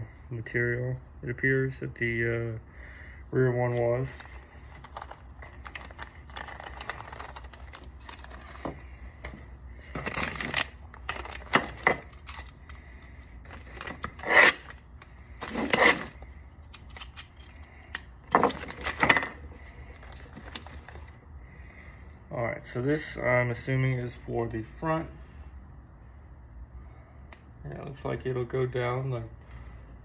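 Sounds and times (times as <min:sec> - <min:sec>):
plastic bag crinkling: 0:04.2 - 0:08.6
small parts clicking: 0:10.6 - 0:12.8, 0:16.6 - 0:19.0.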